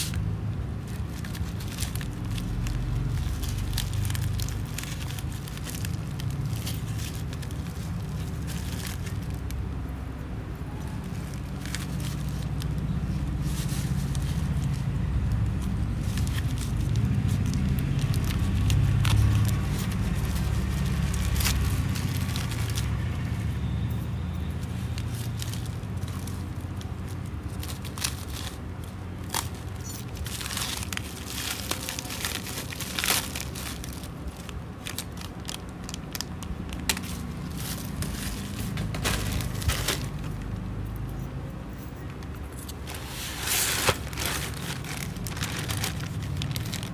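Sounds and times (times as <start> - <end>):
bubble wrap crinkling: 0.0 - 40.8, 42.2 - 46.9.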